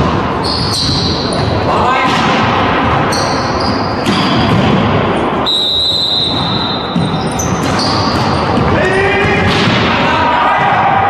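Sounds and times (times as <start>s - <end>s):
sports hall din: 0.0s - 11.0s
shoe squeaks: 0.4s - 1.6s, 3.0s - 4.6s, 5.5s - 9.0s
volleyball being struck: 4.0s - 5.0s.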